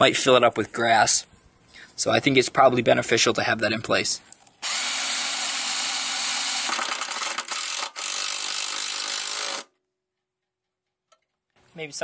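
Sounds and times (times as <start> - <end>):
cordless drill drilling through metal: 4.6 - 9.7.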